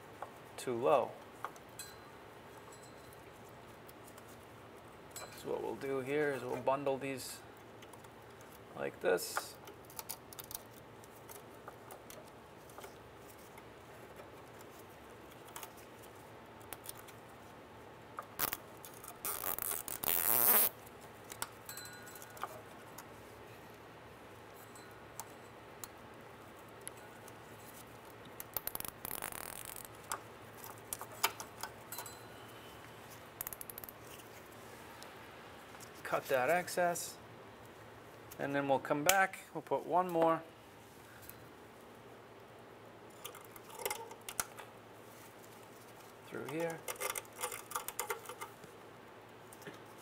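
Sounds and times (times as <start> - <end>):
wires clicking and rustling: 9.3 - 23.8, 24.5 - 36.7, 43.0 - 50.0
cable tie ratcheting: 18.4 - 21.6, 28.4 - 32.1, 33.4 - 34.2, 46.4 - 48.6.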